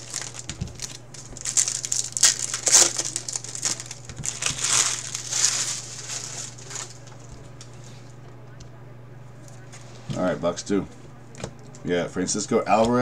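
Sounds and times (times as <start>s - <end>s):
wrappers crinkling: 0.0s - 7.7s
steady low hum: 0.0s - 13.0s.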